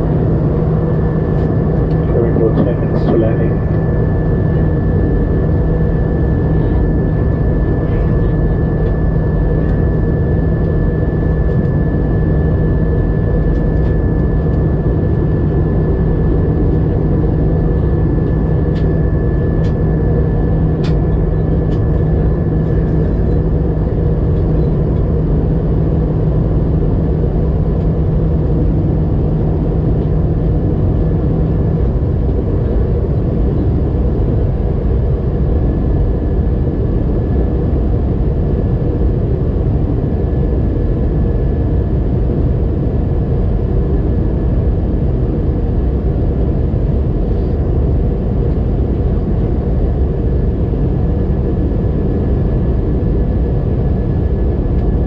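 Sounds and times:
jet engines running: 0:00.0 - 0:55.0
low hum: 0:00.0 - 0:55.0.

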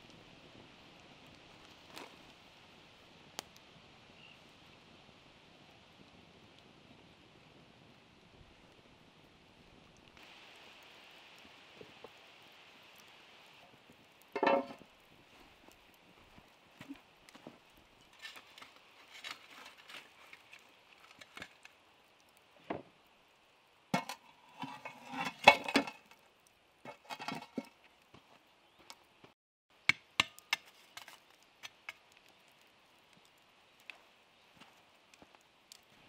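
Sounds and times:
metal shovel scraping embers: 0:14.3 - 0:14.8, 0:18.0 - 0:22.3, 0:23.9 - 0:28.0, 0:30.2 - 0:32.3.

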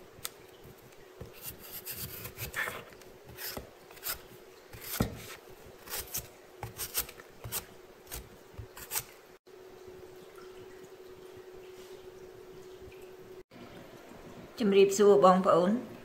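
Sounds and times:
faint steady hum: 0:00.0 - 0:16.0
knife scraping root skin: 0:01.2 - 0:09.1.

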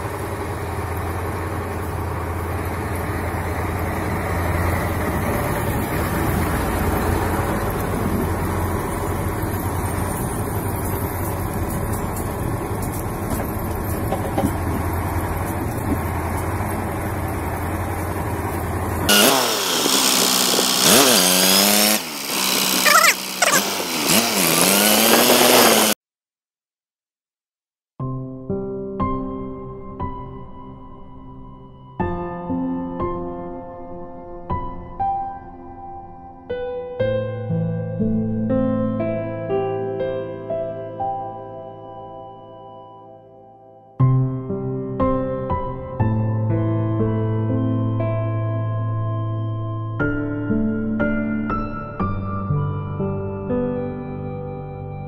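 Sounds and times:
truck diesel engine running: 0:00.0 - 0:26.0.

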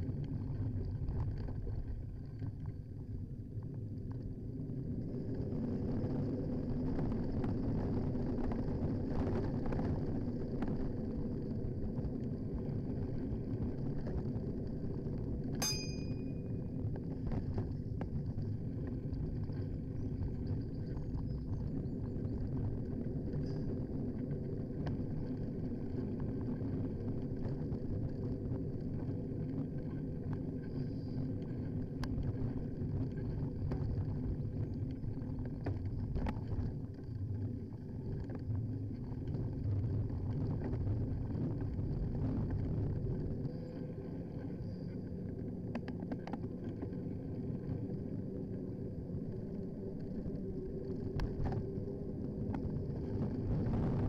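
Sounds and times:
road and wind rumble: 0:00.0 - 0:54.0.

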